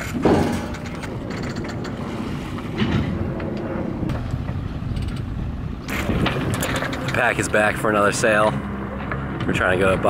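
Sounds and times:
wind on microphone: 0.0s - 7.6s
boat motor rumbling: 0.0s - 10.0s.

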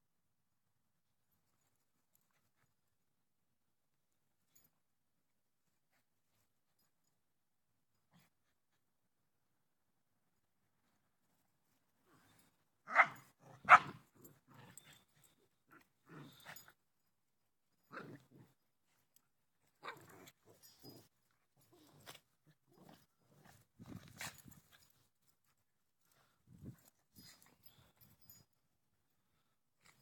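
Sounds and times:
dogs growling and scuffling: 10.8s - 16.8s, 17.8s - 28.4s
dogs barking: 12.9s - 14.0s.

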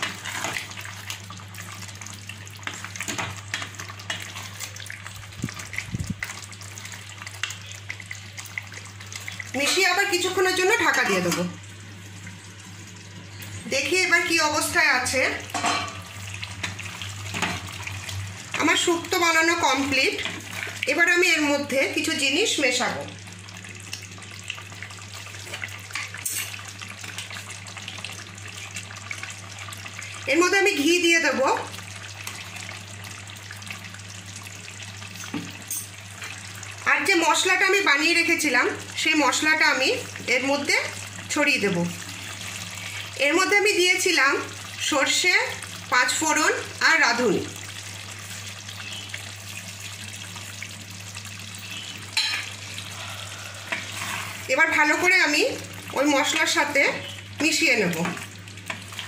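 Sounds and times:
curry simmering and sizzling: 0.0s - 59.0s
spatula scraping a pan: 52.9s - 54.5s.

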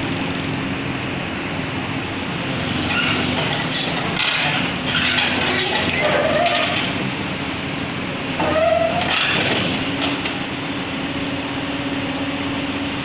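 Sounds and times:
excavator diesel engine running: 0.0s - 13.0s.

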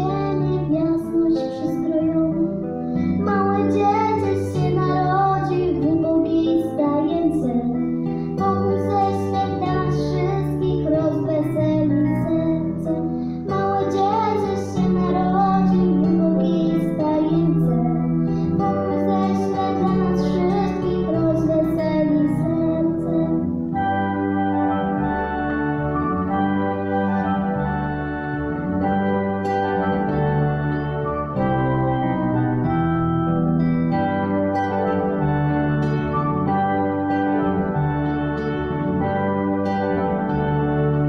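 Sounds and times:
girl singing into a microphone: 0.0s - 23.6s
backing track with plucked strings: 0.0s - 41.0s.

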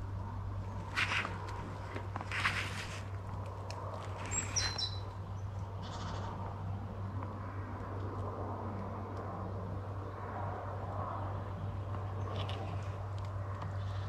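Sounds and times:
faint bird rasp: 4.1s - 5.1s, 5.8s - 6.4s
small bird whistled notes: 4.3s - 5.0s.

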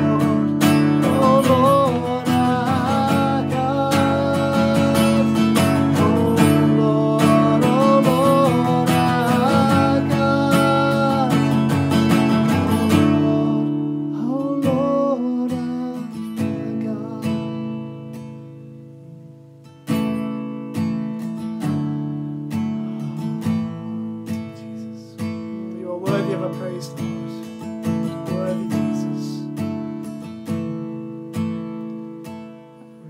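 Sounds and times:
man singing: 0.0s - 18.2s, 23.2s - 29.6s
strummed acoustic guitar: 0.0s - 33.0s.

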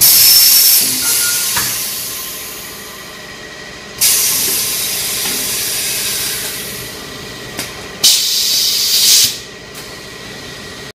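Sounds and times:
hissing air bursts: 8.0s - 9.4s.

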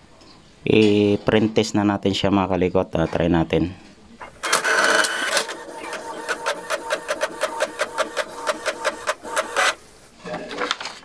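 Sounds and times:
inkjet printer clattering: 4.2s - 9.8s
printer whirr: 4.2s - 10.7s.

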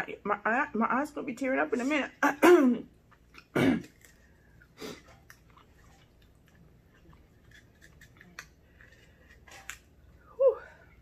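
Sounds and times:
person coughing: 2.2s - 2.9s, 3.5s - 4.0s.

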